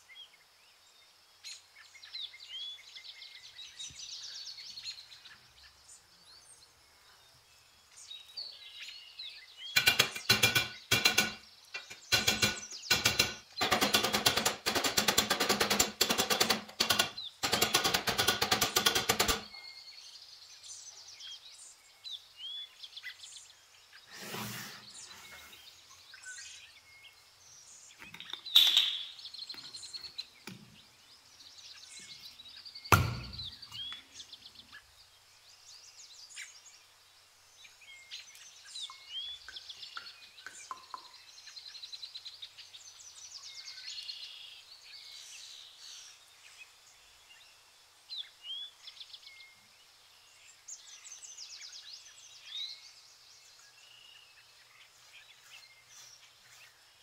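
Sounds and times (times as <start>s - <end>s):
birds chirping: 0.0s - 57.0s
rapid mechanical rattle: 9.8s - 19.5s.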